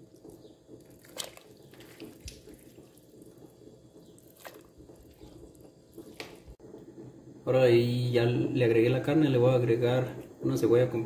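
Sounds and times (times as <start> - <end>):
meat splashing into water: 0.8 - 3.4, 4.0 - 6.4.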